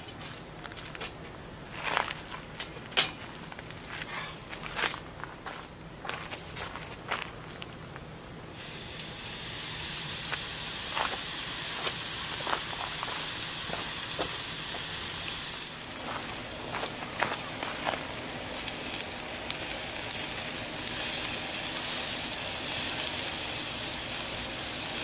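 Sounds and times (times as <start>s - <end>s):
steak sizzling on a grill: 8.5s - 25.0s.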